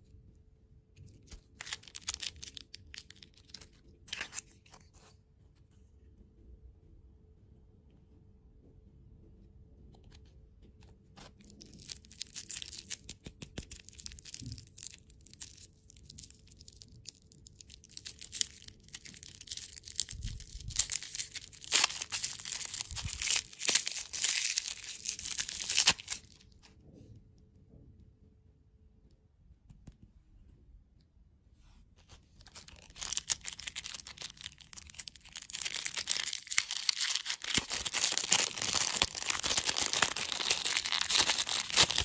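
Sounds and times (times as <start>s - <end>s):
plastic wrapper crinkling and tearing: 1.0s - 4.9s, 11.2s - 26.7s, 32.3s - 42.0s.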